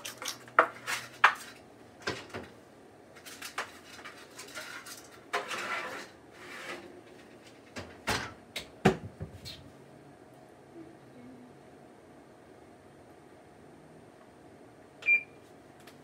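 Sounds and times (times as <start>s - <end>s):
metal scraping: 3.6s - 7.4s.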